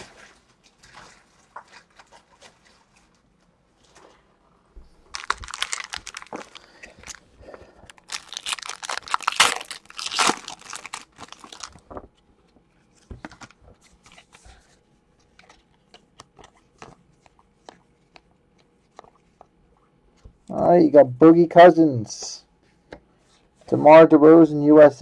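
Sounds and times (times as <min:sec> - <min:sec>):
wrapper tearing and crinkling: 0:05.1 - 0:12.1.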